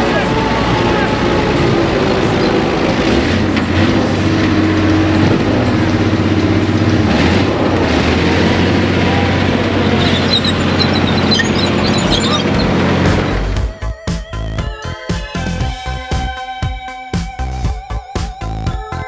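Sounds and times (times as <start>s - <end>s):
tracked vehicle engine running: 0.0s - 13.8s.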